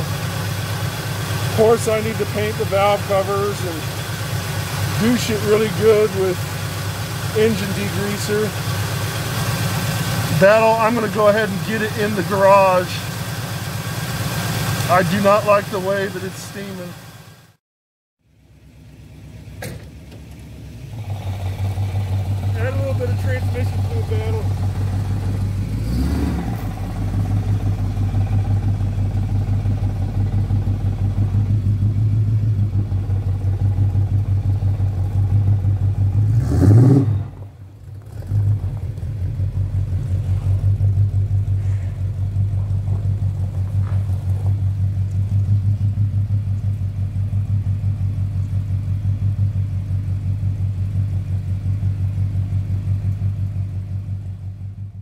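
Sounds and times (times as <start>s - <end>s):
short engine rev: 0.0s - 17.5s, 20.8s - 44.6s
car engine idling: 0.0s - 17.6s, 18.2s - 55.0s.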